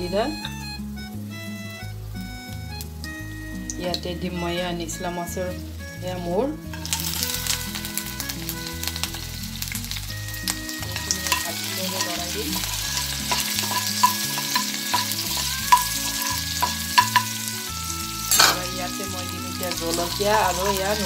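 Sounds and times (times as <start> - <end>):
prawns sizzling in oil: 0.0 - 21.0
ladle clinking and scraping pan: 6.7 - 7.7, 10.8 - 21.0.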